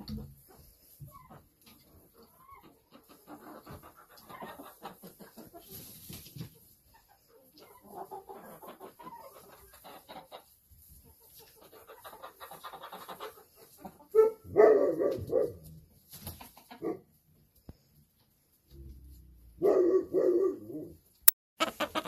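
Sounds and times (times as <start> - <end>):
chickens clucking: 0.0 - 14.4, 15.0 - 19.0, 21.6 - 22.0
chickens squawking: 0.4 - 5.8, 6.9 - 14.4, 21.6 - 22.0.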